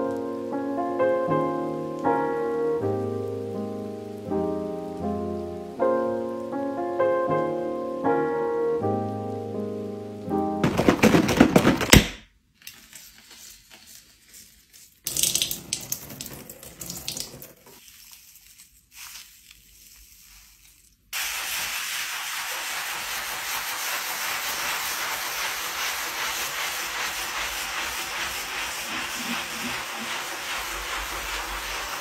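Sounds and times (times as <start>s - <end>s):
steady hiss: 0.0s - 10.5s, 18.4s - 32.0s
scrubbing sink with sponge: 13.6s - 32.0s.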